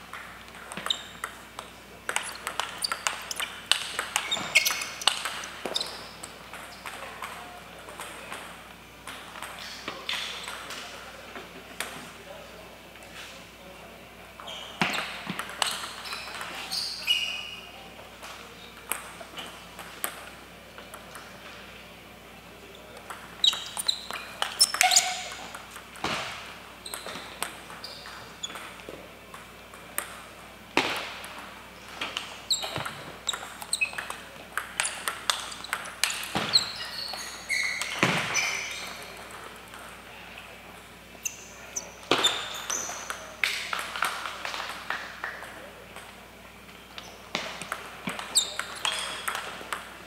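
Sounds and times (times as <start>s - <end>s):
table tennis ball hits: 0.1s - 10.7s, 23.0s - 36.8s, 42.1s - 46.1s, 47.3s - 49.9s.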